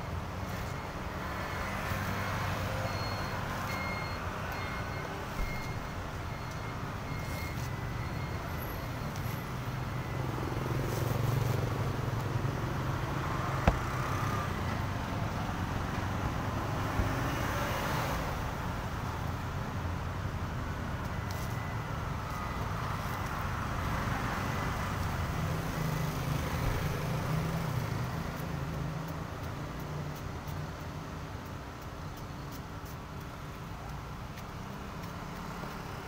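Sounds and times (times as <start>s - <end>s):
vehicle engine rumbling: 0.0s - 16.4s
road traffic noise: 0.0s - 36.0s
sharp knock: 13.6s - 13.9s.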